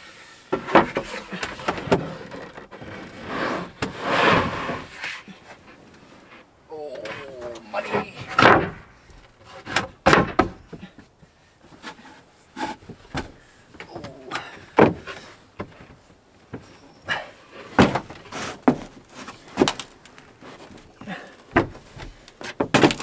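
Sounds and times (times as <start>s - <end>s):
wooden boards knocking and sliding: 0.5s - 5.2s, 7.0s - 23.0s
person scrambling on wooden platform: 0.5s - 23.0s.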